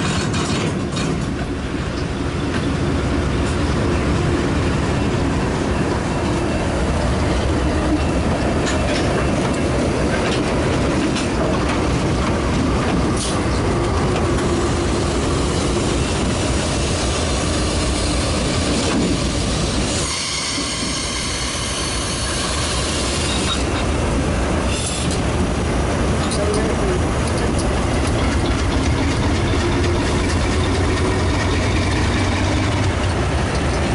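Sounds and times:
diesel locomotive engines: 0.0s - 33.9s
wheel-on-rail noise: 0.0s - 33.9s.

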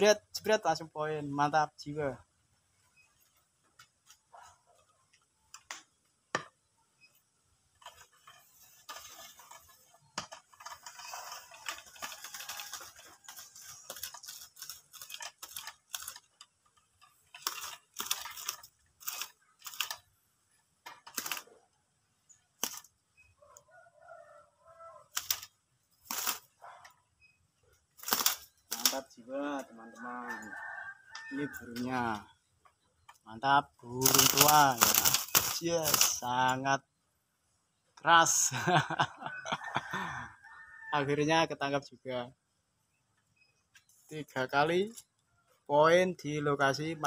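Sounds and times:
bird flapping wings: 25.1s - 26.5s, 28.0s - 28.9s, 34.0s - 36.2s.

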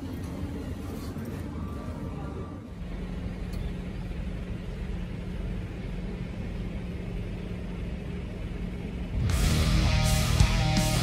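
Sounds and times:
low outdoor rumble: 0.0s - 11.0s
rock music with electric guitar: 9.2s - 11.0s.

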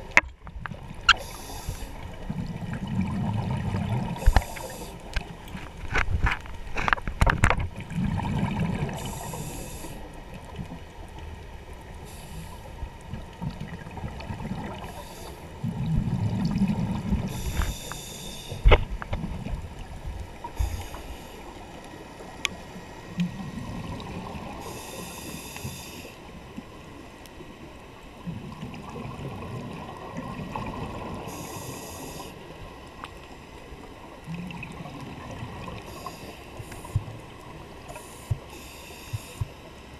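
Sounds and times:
exhaled air bubbling: 0.0s - 5.2s, 7.8s - 9.8s
regulator inhale hiss: 1.2s - 2.2s, 4.2s - 5.1s, 8.9s - 10.2s, 12.0s - 12.8s, 14.7s - 15.7s, 17.2s - 18.8s, 20.4s - 21.8s, 24.6s - 26.3s, 31.2s - 32.6s, 35.8s - 37.2s, 37.8s - 39.8s.

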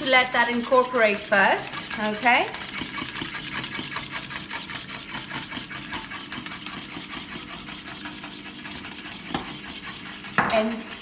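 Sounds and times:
wire whisk beating in a bowl: 0.0s - 11.0s.

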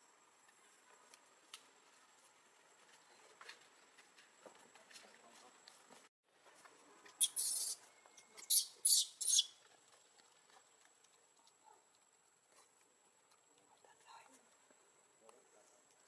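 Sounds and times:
monkey shrill squeals: 7.2s - 7.8s, 8.4s - 9.6s.

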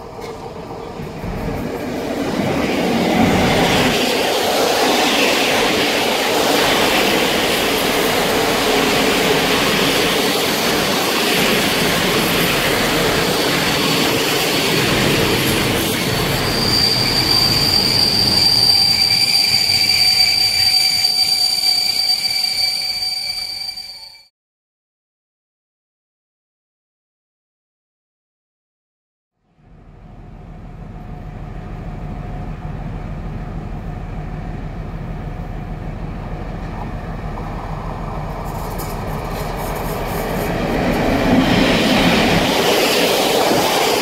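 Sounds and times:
train wheels rumbling and clattering: 0.0s - 22.6s, 29.8s - 44.0s
shrill wheel squeal: 2.9s - 24.3s.

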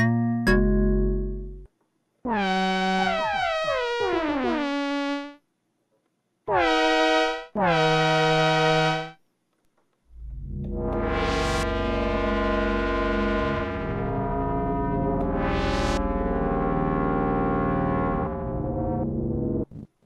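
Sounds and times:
buzzy synthesizer notes: 2.3s - 5.4s, 6.5s - 9.2s, 10.1s - 19.7s.

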